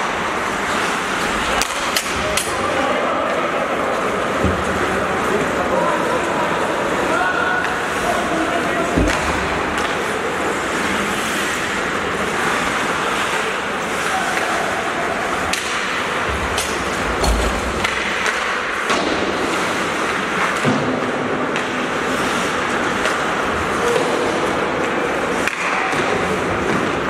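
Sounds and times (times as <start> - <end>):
hockey stick and puck clacks: 0.6 - 2.6, 8.9 - 10.1, 15.3 - 27.0
skates scraping on ice: 7.6 - 20.6.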